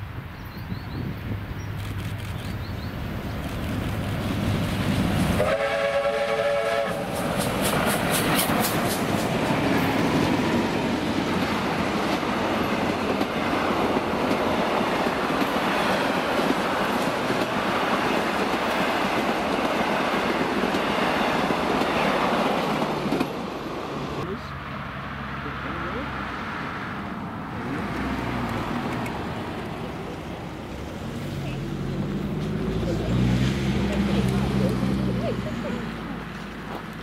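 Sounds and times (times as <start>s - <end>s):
steam engine beats: 4.7s - 9.8s
steam locomotive whistle: 5.4s - 7.2s
train wheel and rail clatter: 6.4s - 23.7s.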